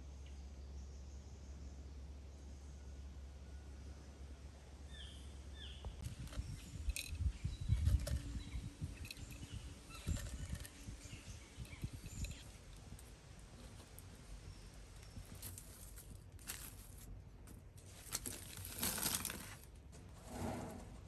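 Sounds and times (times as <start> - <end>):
bird chirps: 4.9 - 12.7
light clicks of handling pellets: 14.9 - 19.7.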